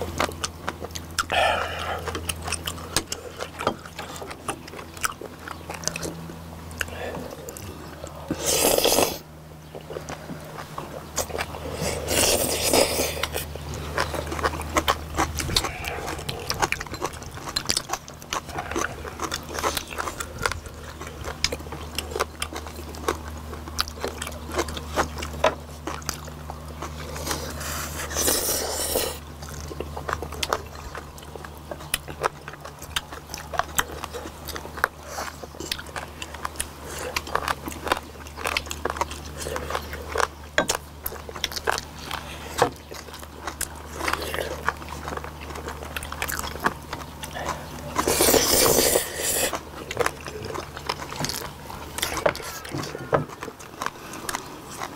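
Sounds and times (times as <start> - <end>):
chewing and biting food: 0.0 - 54.9
steady low hum: 0.0 - 54.9
wet eating clicks and smacks: 0.0 - 54.9.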